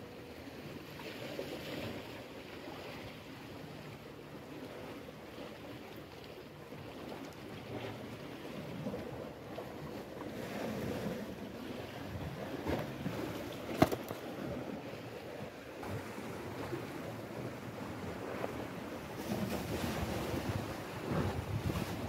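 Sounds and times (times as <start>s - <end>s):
wind buffeting microphone: 17.6s - 22.0s.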